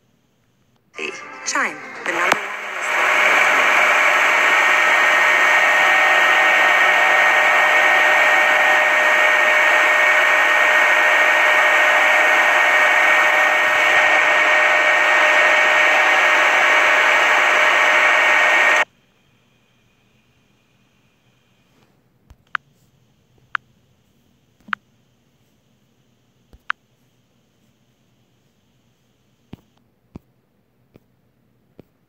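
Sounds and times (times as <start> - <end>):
static hiss: 1.6 - 18.8.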